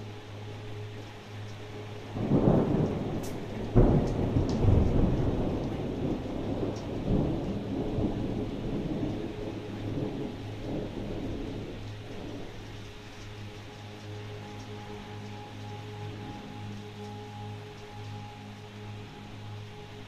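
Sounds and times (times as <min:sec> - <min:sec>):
steady rain: 0:00.0 - 0:20.0
thunder rumbling and cracking: 0:02.2 - 0:12.9.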